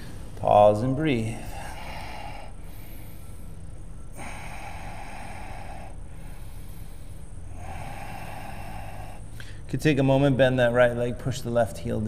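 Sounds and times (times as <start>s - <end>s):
low hum: 0.0s - 12.0s
person breathing through the nose: 1.4s - 9.7s.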